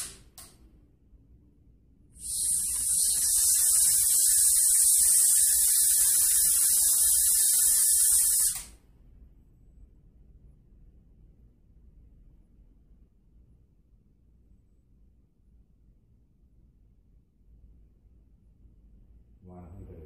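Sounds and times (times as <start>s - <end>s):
steady air hiss: 0.0s - 0.4s, 2.1s - 8.8s.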